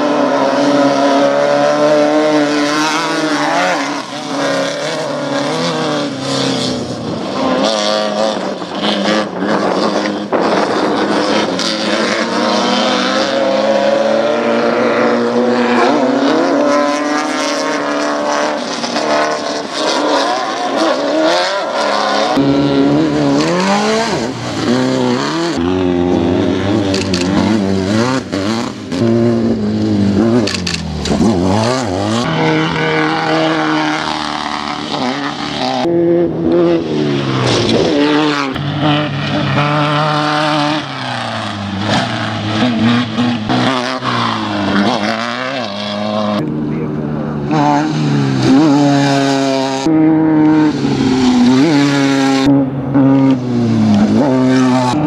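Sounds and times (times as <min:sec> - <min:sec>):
race car engines revving past: 0:00.0 - 0:55.0.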